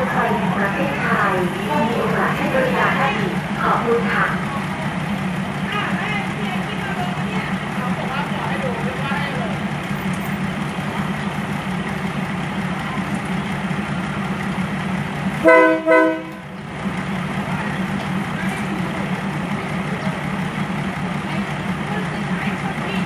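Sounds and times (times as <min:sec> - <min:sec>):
train horn blasts: 0:15.4 - 0:16.5.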